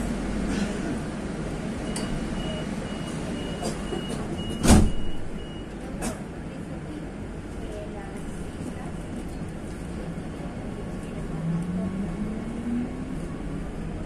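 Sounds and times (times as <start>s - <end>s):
train hum: 0.0s - 4.5s, 5.3s - 14.0s
train doors thudding shut: 3.1s - 5.4s.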